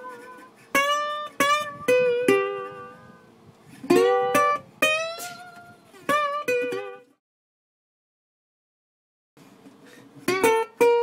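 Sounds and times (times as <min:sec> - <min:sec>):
guitar plucking single notes: 0:00.0 - 0:07.2, 0:10.2 - 0:11.0.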